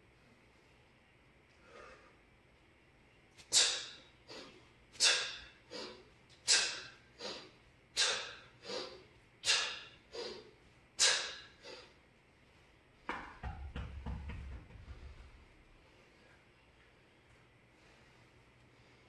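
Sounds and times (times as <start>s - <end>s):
man breathing out forcefully: 3.5s - 12.0s.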